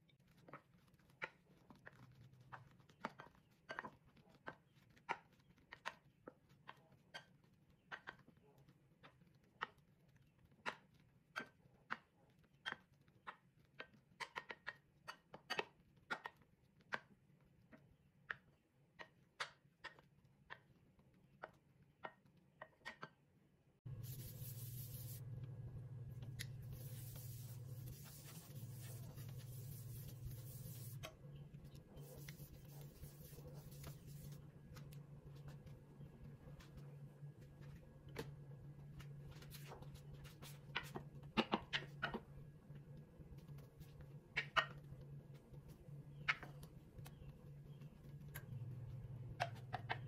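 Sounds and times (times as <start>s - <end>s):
low hum with hiss: 23.9s - 50.0s.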